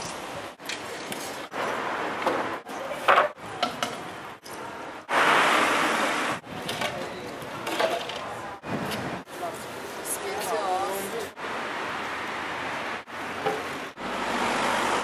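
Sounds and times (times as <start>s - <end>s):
loud rough rushing noise: 5.1s - 6.4s.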